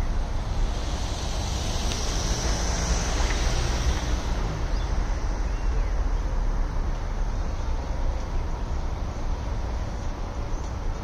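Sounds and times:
wind buffeting microphone: 0.0s - 6.4s.

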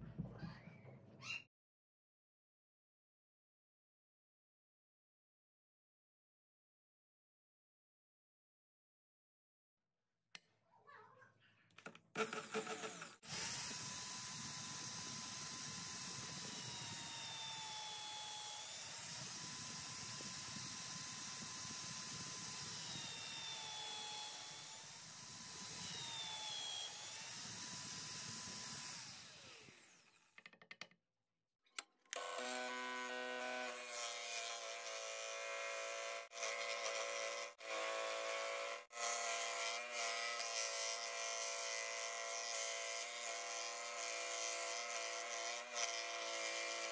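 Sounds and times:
scroll saw cutting wood: 12.1s - 30.6s, 32.1s - 46.9s
electric drill boring into wood: 12.2s - 30.6s, 32.1s - 46.9s.

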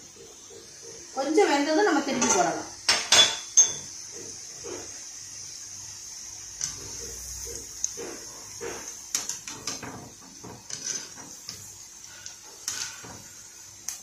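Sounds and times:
food sizzling in hot oil: 0.0s - 14.0s
skimmer scraping against pan: 6.6s - 13.5s.

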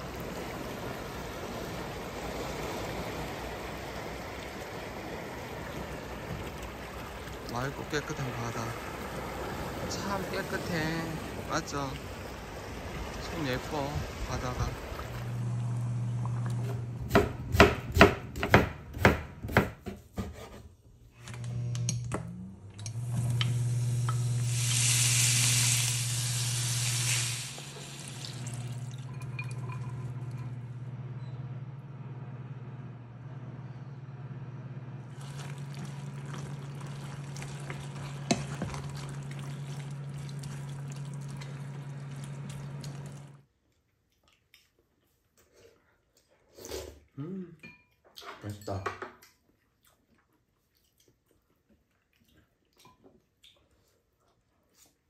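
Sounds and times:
food simmering in pot: 0.0s - 17.0s, 35.1s - 43.5s
steady low hum: 21.3s - 43.4s
loud hissing sizzle: 23.0s - 28.9s.

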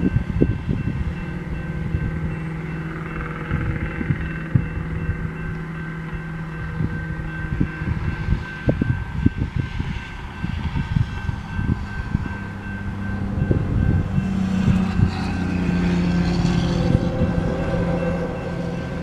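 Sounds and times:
freight train rumble: 0.0s - 19.0s
wind buffeting microphone: 0.0s - 19.0s.

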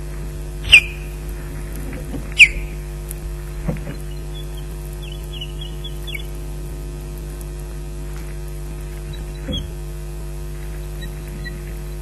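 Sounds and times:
electrical mains hum: 0.0s - 12.0s
faint high bird chirps: 0.6s - 1.2s, 2.3s - 2.8s, 4.0s - 6.4s, 11.0s - 11.7s.

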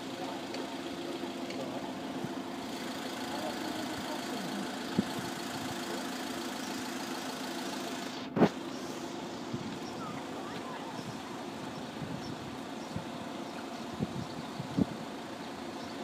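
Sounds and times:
engine idling hum: 0.0s - 16.0s.

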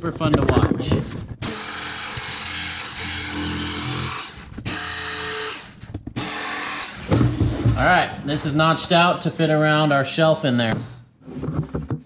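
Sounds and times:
jigsaw cutting plywood: 1.4s - 7.5s.

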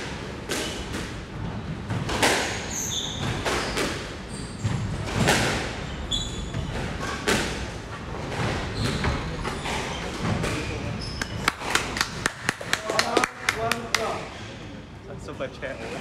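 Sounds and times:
squash ball hitting rackets and walls: 0.0s - 14.2s
shoes squeaking on wooden floor: 5.8s - 7.2s, 8.2s - 12.2s.

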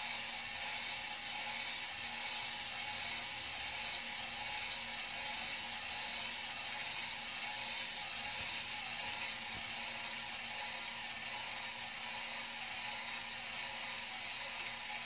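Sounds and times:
gear motor whirring: 0.0s - 15.0s.

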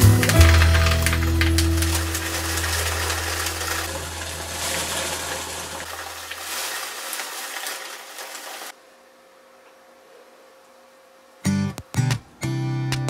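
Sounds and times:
dried peas pouring into plastic tub: 0.0s - 8.7s.

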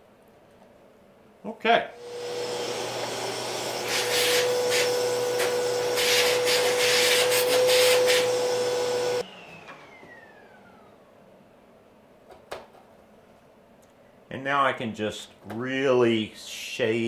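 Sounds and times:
shop vacuum running: 1.9s - 11.3s
air rushing into vacuum nozzle: 2.0s - 9.2s
vacuum motor winding down: 2.0s - 11.1s.

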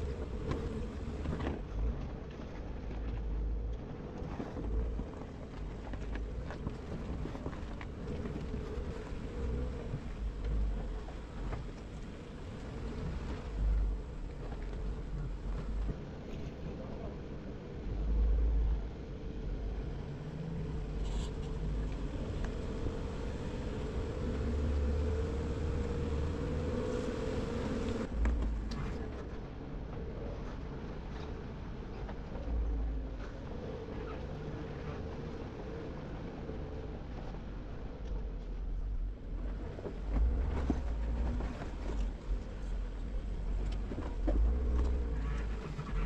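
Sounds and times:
wind rumbling on microphone: 0.0s - 46.0s
car engine running: 20.8s - 29.0s.

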